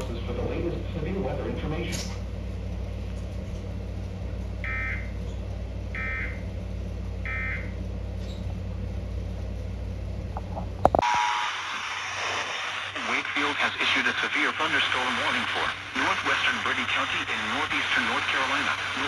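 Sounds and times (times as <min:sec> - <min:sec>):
steady low hum: 0:00.0 - 0:19.0
radio hiss: 0:11.0 - 0:19.0.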